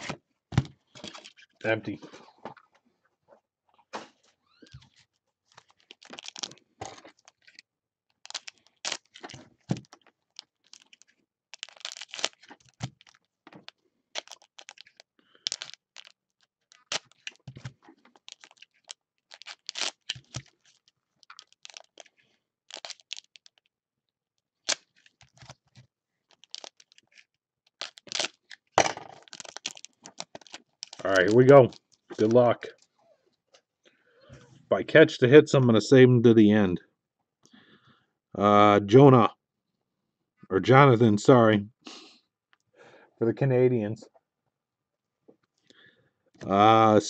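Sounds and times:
foil card packs crinkling and clicking: 0:00.0 - 0:01.5, 0:04.8 - 0:23.7, 0:24.6 - 0:32.6.

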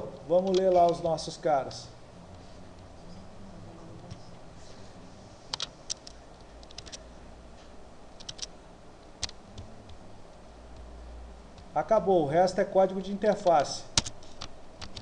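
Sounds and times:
faint low hum: 0:00.0 - 0:15.0
light computer clicks: 0:00.2 - 0:01.0, 0:05.5 - 0:07.1, 0:08.2 - 0:10.9, 0:13.3 - 0:15.0.

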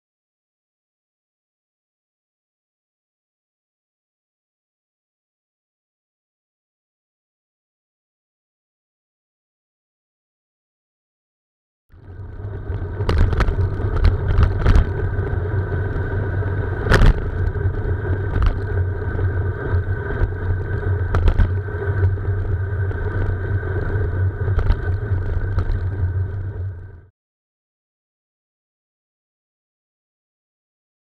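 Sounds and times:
faint hums: 0:11.9 - 0:27.1
road and wind rumble: 0:11.9 - 0:27.1.

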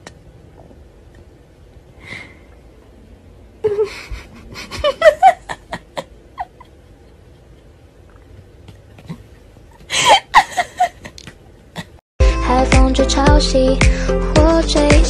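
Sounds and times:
woman laughing breathily: 0:03.6 - 0:07.7, 0:09.8 - 0:11.2.

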